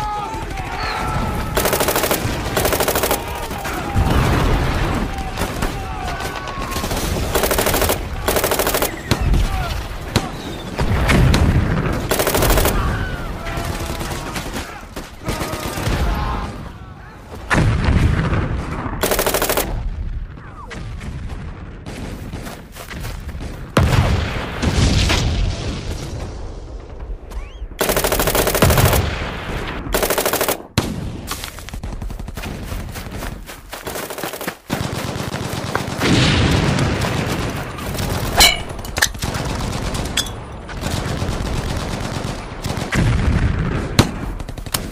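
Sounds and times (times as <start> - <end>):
rifle shots: 1.5 - 3.6, 6.7 - 9.4, 10.9 - 13.0, 19.0 - 19.8, 27.8 - 31.2
machine-gun bursts: 1.6 - 3.5, 7.2 - 9.2, 12.1 - 12.9, 19.0 - 19.7, 27.8 - 29.1, 29.9 - 30.6.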